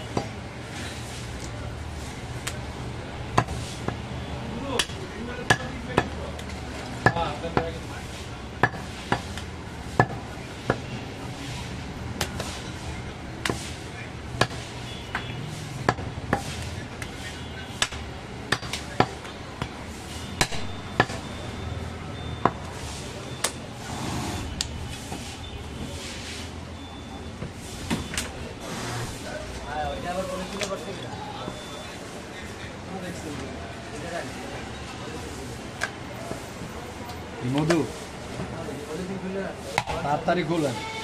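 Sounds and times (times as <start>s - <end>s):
cleaver chopping on wooden block: 14.4s - 16.6s.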